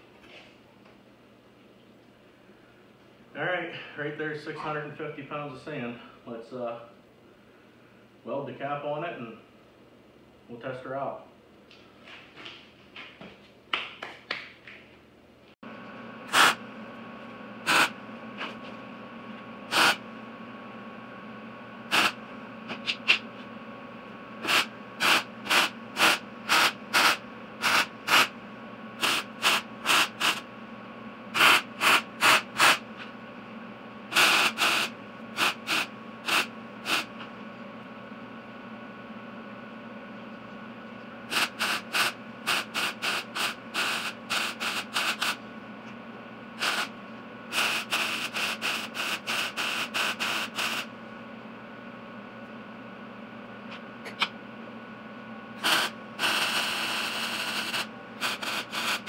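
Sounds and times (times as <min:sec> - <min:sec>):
steady hum: 0:00.0 - 0:59.0
welder arc crackling: 0:19.7 - 0:20.0, 0:21.9 - 0:22.2, 0:24.4 - 0:28.3, 0:29.0 - 0:30.5, 0:34.1 - 0:37.2, 0:41.3 - 0:45.4, 0:55.6 - 0:59.0.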